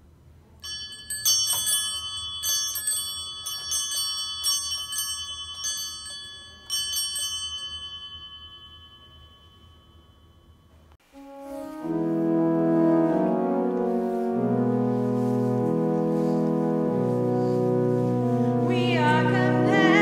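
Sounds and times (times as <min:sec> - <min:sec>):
small bells jangling: 0:00.6 - 0:10.9.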